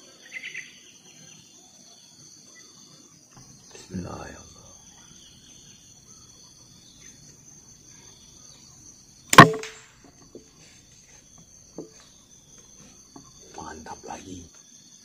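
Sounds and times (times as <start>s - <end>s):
insects droning: 0.0s - 15.0s
air rifle shot: 9.3s - 9.9s.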